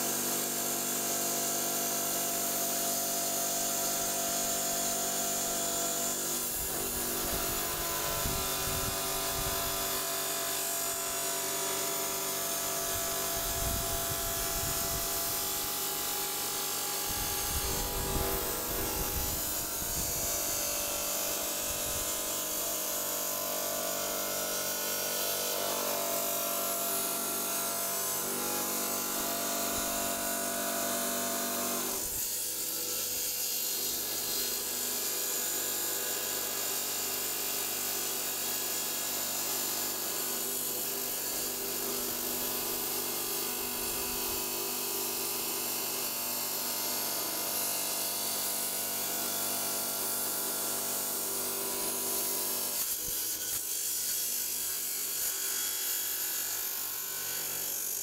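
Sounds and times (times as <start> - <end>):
saw motor hum: 2.4 - 33.0
saw blade grinding through stone: 3.4 - 35.2, 48.2 - 58.0.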